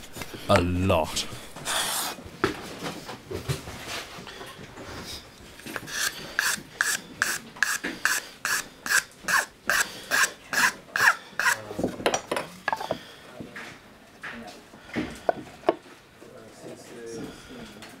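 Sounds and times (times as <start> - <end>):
hand file rasping strokes: 5.7 - 11.6.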